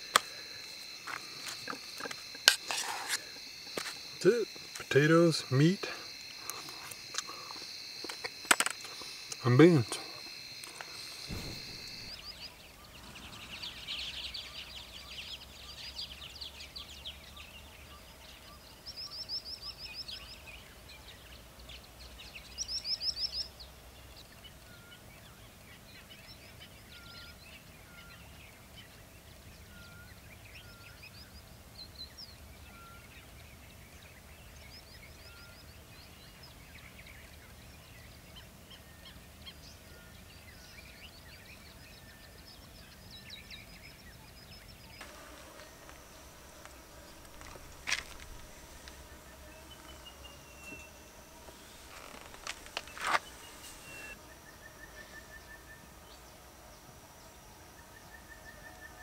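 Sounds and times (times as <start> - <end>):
wild birds chattering: 0.0 - 56.4
bird loud rapid trills: 9.4 - 15.4
soft whistled bird notes: 9.4 - 17.5, 44.7 - 55.8.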